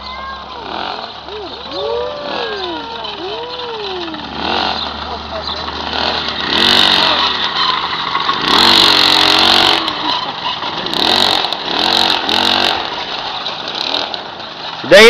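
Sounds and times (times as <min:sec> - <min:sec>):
moped engine revving: 0:00.0 - 0:15.0.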